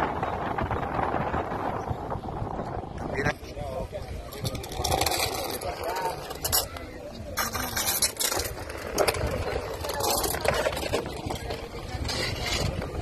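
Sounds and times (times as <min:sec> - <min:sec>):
indistinct voices outdoors: 0:00.0 - 0:13.0
wind noise: 0:00.0 - 0:13.0
clinks and scrapes: 0:04.1 - 0:13.0.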